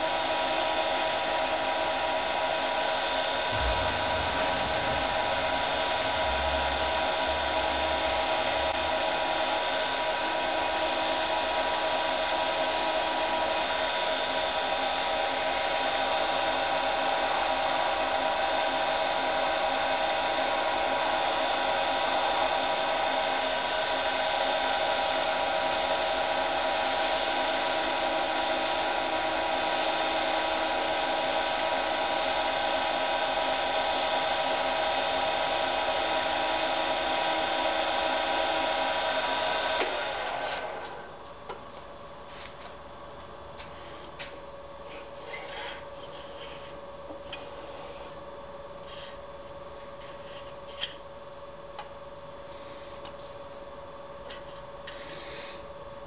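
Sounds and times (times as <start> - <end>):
wood lathe motor whine: 0.0 - 43.0, 43.6 - 48.9, 51.3 - 56.0
soft low thumps: 3.5 - 9.2.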